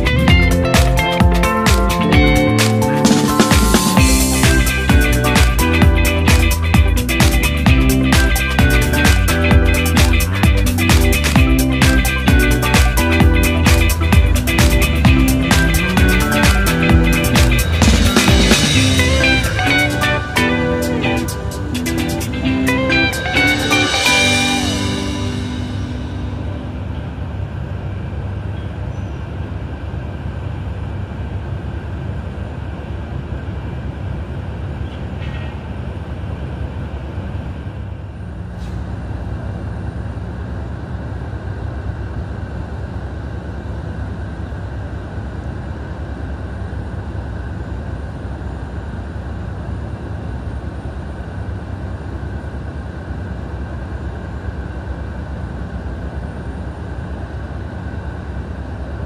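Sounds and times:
aircraft turbine rumble and whine: 0.0s - 59.0s.

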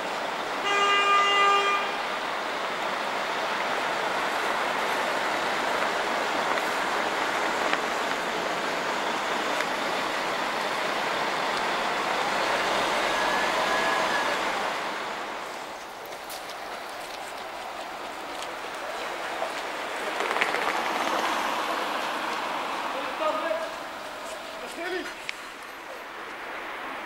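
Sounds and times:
bus driving past: 0.0s - 27.0s
tyres hissing on wet road: 0.0s - 27.0s
vehicle horn toot: 0.6s - 2.0s.

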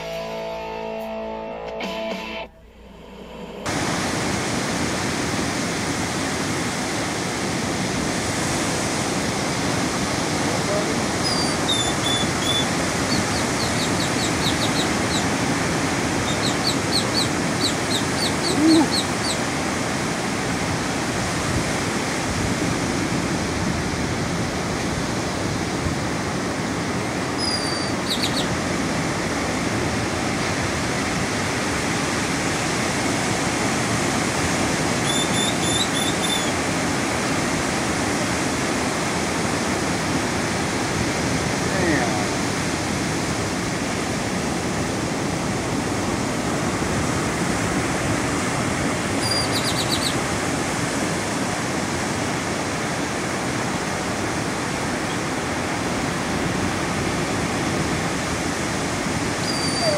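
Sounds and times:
ocean surf breaking: 2.7s - 59.9s
small bird chirping: 11.2s - 15.3s, 16.2s - 19.4s, 27.4s - 28.5s, 35.0s - 36.5s, 49.2s - 50.2s.

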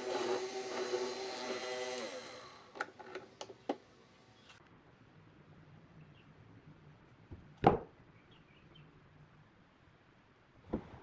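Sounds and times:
electric motor humming: 0.0s - 2.8s.

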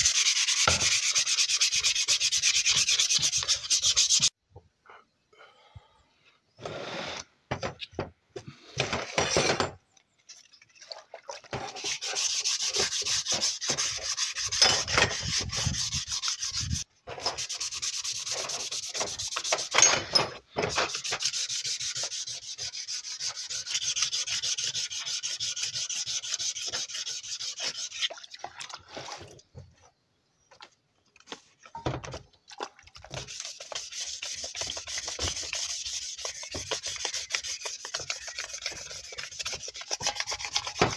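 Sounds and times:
sandpaper scraping metal: 0.0s - 4.3s, 11.7s - 20.0s, 20.6s - 28.1s, 33.1s - 40.9s.

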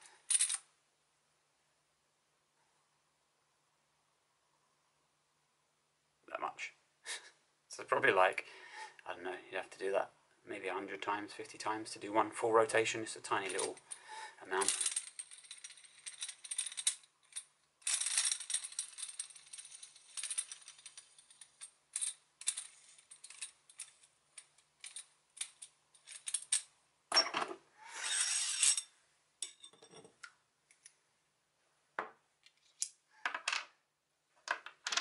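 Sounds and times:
clatter of metal parts: 13.4s - 30.0s
metallic clicks and clinks: 14.6s - 26.7s.

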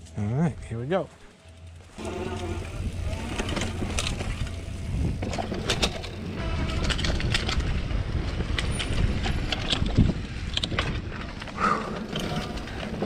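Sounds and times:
tyres rolling on dirt: 0.0s - 13.0s
bike rattling over bumps: 1.1s - 13.0s
wind on microphone: 2.4s - 11.8s.

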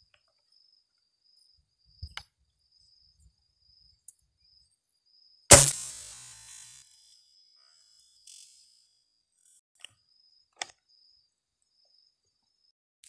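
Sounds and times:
insect chirping: 0.0s - 12.7s
gunshot: 5.5s - 6.4s.

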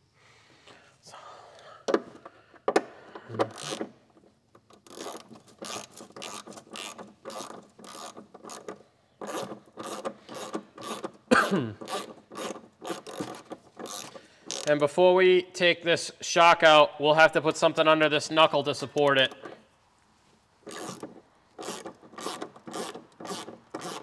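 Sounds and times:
ratchet wrench clicking: 3.4s - 3.9s, 4.8s - 11.2s, 11.8s - 14.7s, 20.7s - 24.0s.

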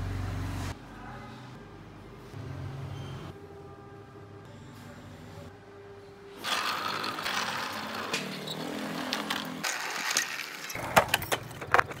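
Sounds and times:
toy car wheels rolling on concrete: 6.4s - 12.0s.

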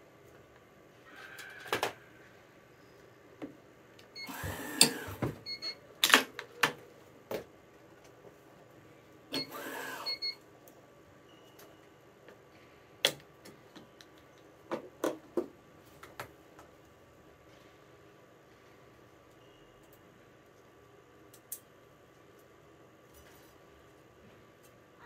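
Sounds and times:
stringing machine beeping: 4.2s - 5.8s.

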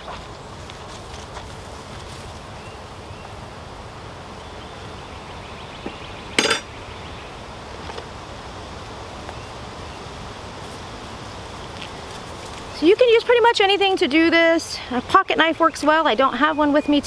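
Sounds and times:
honeybees humming: 0.0s - 17.0s
metallic clink of tools: 6.4s - 6.7s.

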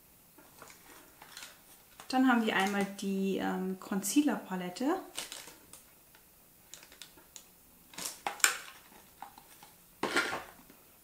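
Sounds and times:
handling noise: 0.4s - 3.0s, 6.7s - 10.7s
plastic packaging clicks and taps: 0.6s - 2.9s, 5.2s - 10.5s.

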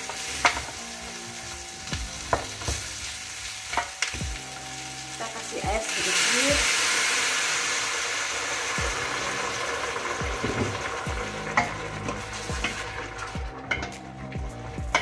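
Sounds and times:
pot hissing and sizzling: 0.0s - 15.0s
wooden spoon knocking pot: 10.3s - 14.0s.

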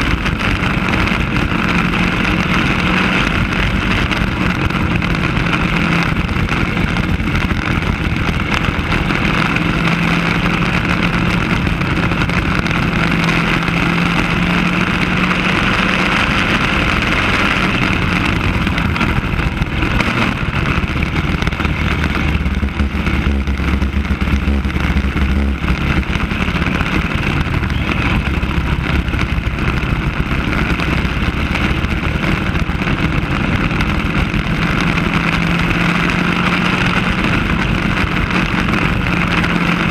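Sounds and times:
kart engine running hard: 0.0s - 39.9s.

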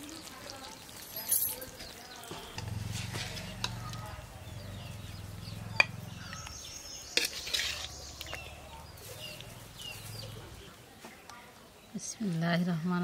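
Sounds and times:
birds chirping: 0.0s - 13.0s
metal spatula scraping wok: 2.5s - 4.3s, 5.8s - 10.2s.

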